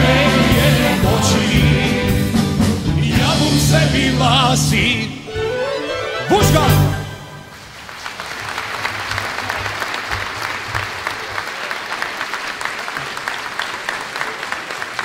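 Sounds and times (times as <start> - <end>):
audience applauding: 7.4 - 15.0.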